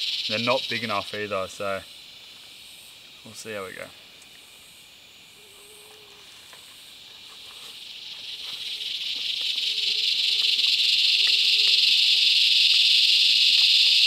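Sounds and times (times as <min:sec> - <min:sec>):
insect chorus buzzing: 0:00.0 - 0:14.0.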